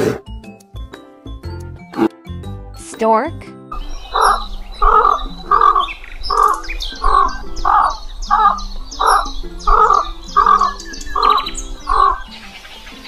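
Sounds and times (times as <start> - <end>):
small birds chirping: 3.0 - 13.0.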